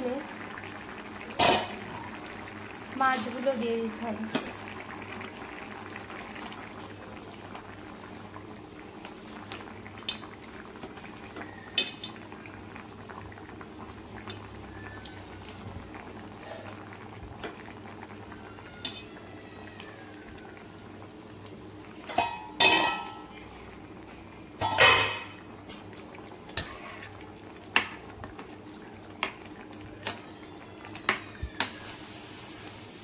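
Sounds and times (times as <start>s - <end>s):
gravy bubbling in a frying pan: 0.0s - 33.0s
cookware clattering: 22.1s - 23.3s, 24.6s - 25.4s.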